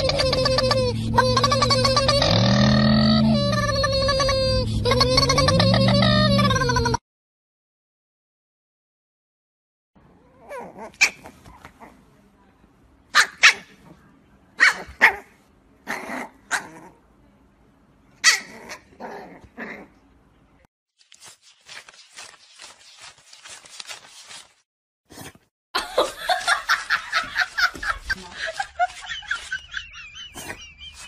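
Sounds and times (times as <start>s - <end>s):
puppy yapping: 13.2s - 13.8s, 14.6s - 15.3s, 18.2s - 19.8s.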